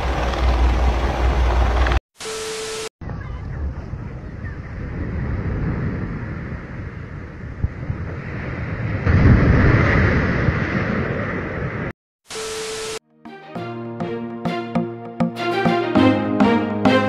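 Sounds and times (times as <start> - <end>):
wind buffeting microphone: 3.0 - 11.9
static hiss: 12.3 - 13.0
music: 13.1 - 17.0.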